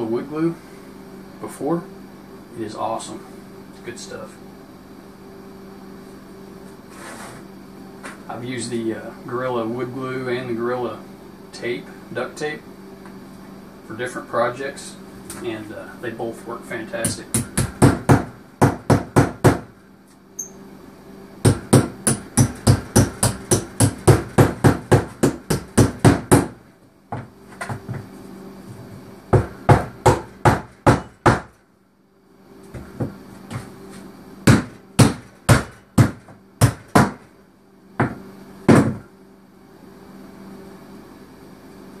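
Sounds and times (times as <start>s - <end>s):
hammer striking plywood: 17.4s - 19.7s, 21.5s - 27.8s, 29.3s - 31.5s, 34.5s - 37.2s, 38.0s - 39.0s.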